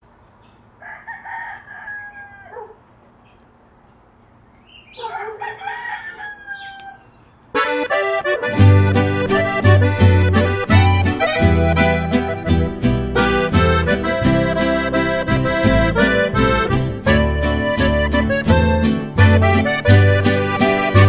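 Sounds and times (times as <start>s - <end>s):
rooster crowing: 0.8s - 2.9s, 4.9s - 7.3s
band music with accordion: 7.6s - 21.0s.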